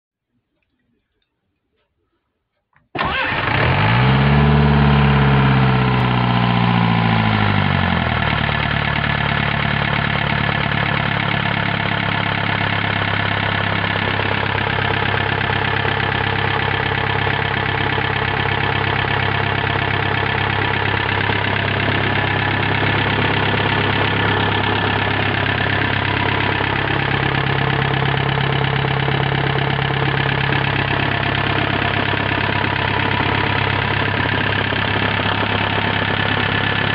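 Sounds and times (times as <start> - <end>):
diesel engine starting and idling: 3.0 - 36.9.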